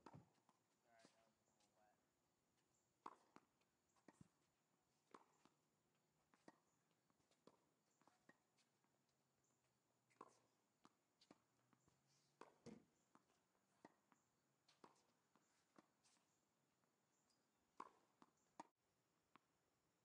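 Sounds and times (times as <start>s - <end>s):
ball bouncing on hard court: 3.0s - 3.5s
tennis ball struck by racket: 3.0s - 4.4s, 6.3s - 6.7s, 12.4s - 14.1s, 17.8s - 18.7s.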